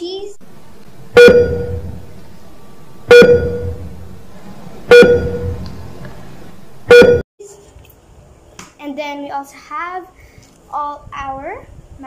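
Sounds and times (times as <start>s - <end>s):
sharp pitched sound effect hit: 1.1s - 5.8s.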